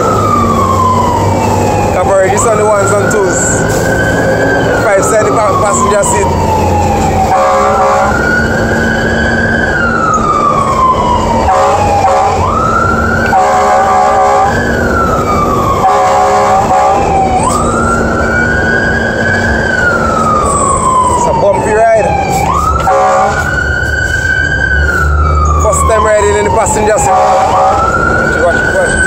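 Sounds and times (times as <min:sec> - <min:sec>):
fire truck siren wailing: 0:00.0 - 0:29.0
horn bursts: 0:07.3 - 0:08.2, 0:11.5 - 0:12.4, 0:13.3 - 0:14.6, 0:15.8 - 0:17.0, 0:22.8 - 0:23.5.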